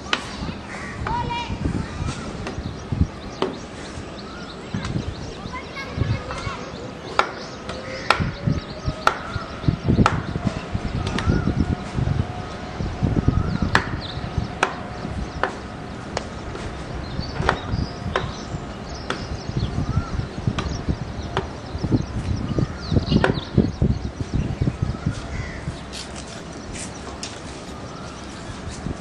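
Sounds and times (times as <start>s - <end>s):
distant jet engine whine: 0.0s - 29.0s
low rumbling: 0.0s - 29.0s
sharp chopping knocks: 17.4s - 18.4s.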